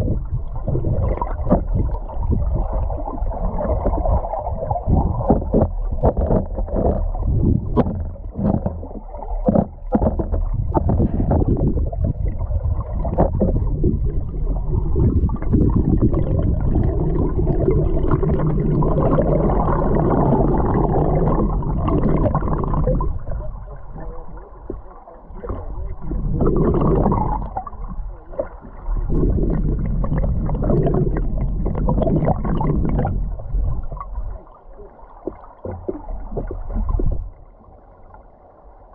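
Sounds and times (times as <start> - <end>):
underwater river current rushing: 0.0 - 38.9
clicks and knocks: 5.2 - 11.7.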